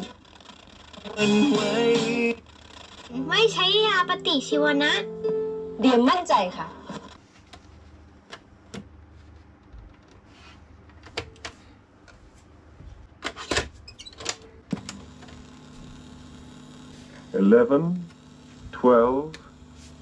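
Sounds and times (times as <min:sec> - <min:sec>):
cassette door opening and shutting: 0:13.2 - 0:15.4.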